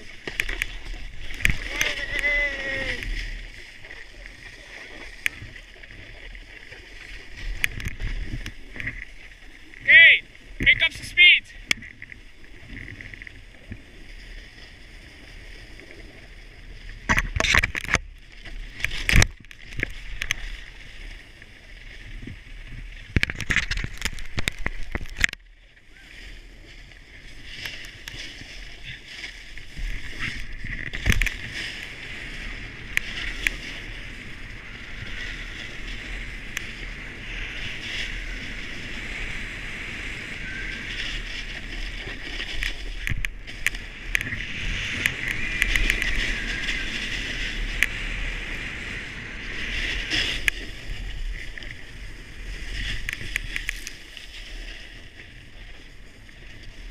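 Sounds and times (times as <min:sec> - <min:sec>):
snowboard scraping on snow: 0:26.3 - 0:56.9.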